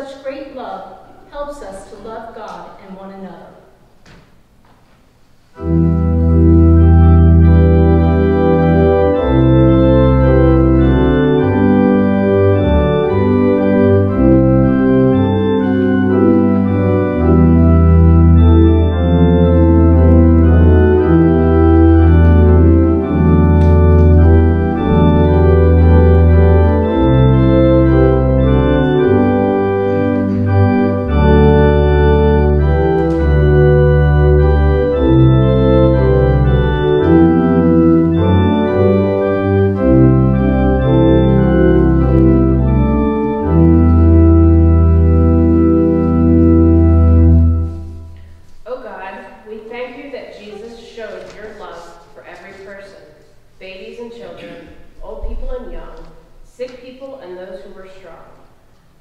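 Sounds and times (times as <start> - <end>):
organ playing slow chords: 5.4 - 48.6.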